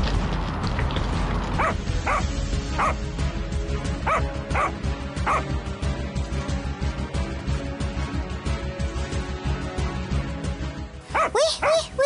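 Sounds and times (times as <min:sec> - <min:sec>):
background music: 0:00.0 - 0:12.0
dog barking: 0:01.6 - 0:03.0, 0:04.1 - 0:05.5, 0:11.1 - 0:12.0.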